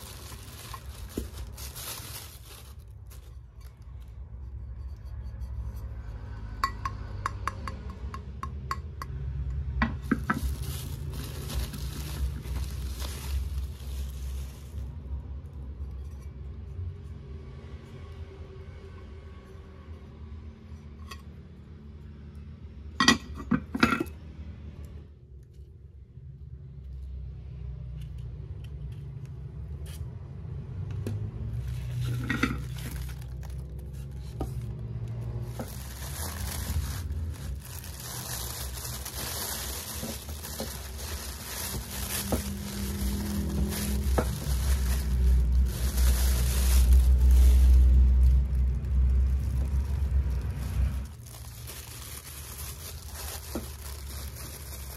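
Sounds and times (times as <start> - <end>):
plastic and styrofoam rustling: 0.0 - 4.2, 9.9 - 15.7, 31.3 - 54.9.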